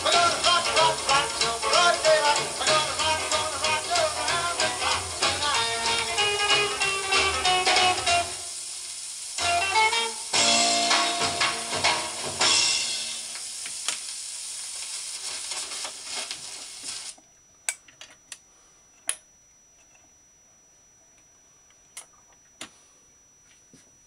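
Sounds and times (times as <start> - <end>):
stylus hissing and ticking: 0.0 - 17.2.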